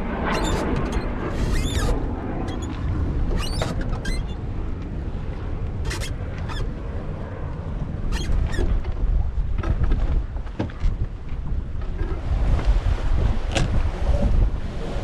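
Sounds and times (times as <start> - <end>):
strong wind on microphone: 0.0 - 15.0
sharp high squeaks or splashes: 0.3 - 4.4, 5.8 - 6.7, 8.1 - 8.7.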